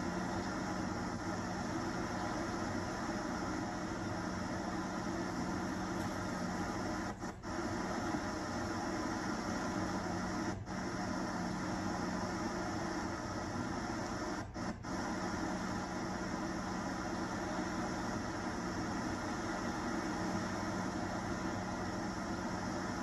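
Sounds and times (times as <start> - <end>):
static hiss: 0.0 - 23.0.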